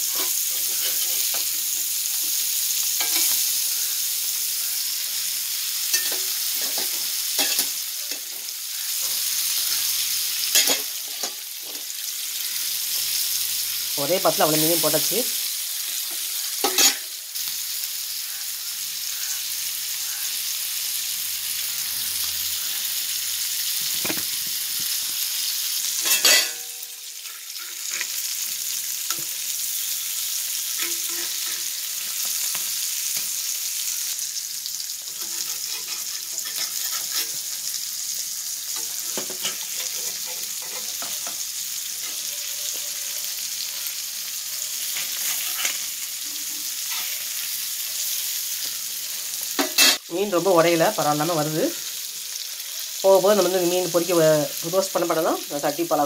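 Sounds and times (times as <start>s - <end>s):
metal spatula scraping pan: 0.0s - 1.8s, 5.9s - 8.5s, 15.9s - 17.1s, 26.0s - 28.4s, 30.6s - 32.6s, 35.1s - 37.8s, 38.7s - 41.4s, 44.8s - 46.0s, 46.6s - 47.5s
fish sizzling in a pan: 0.0s - 56.0s.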